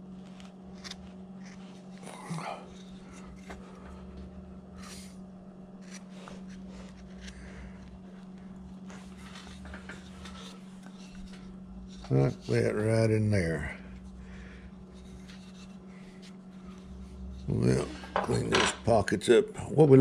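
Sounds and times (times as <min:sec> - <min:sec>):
steady low hum: 0:00.0 - 0:20.0
wood carving tool scraping: 0:00.3 - 0:18.5.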